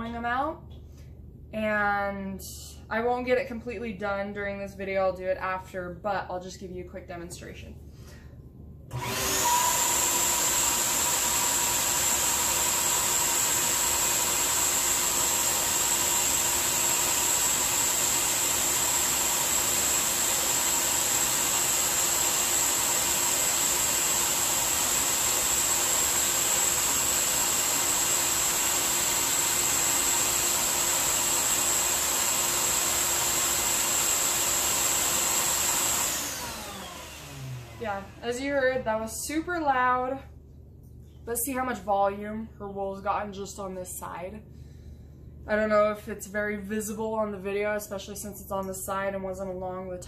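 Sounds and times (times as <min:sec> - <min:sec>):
vacuum blower rushing air: 0:08.9 - 0:38.5.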